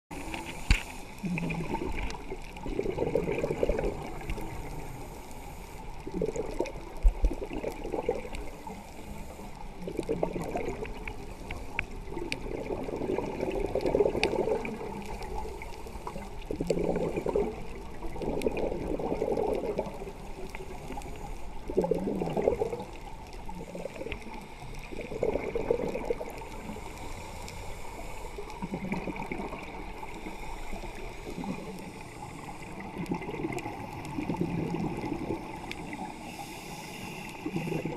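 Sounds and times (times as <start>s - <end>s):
exhaled air bubbling: 0.1s - 37.9s.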